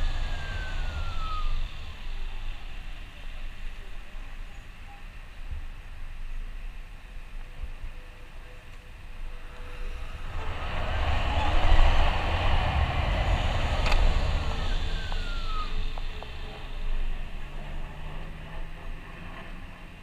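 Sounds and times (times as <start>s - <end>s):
electric motor whine: 0.0s - 2.9s, 9.4s - 18.7s
wind rush on microphone: 0.0s - 8.0s, 8.9s - 20.0s.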